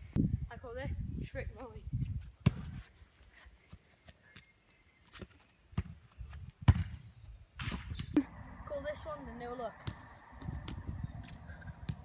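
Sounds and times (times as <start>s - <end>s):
football thuds: 6.6s - 7.0s.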